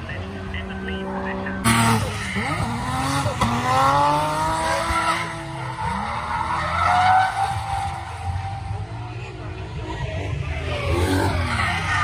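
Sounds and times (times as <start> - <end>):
car engine revving hard: 1.2 - 8.6.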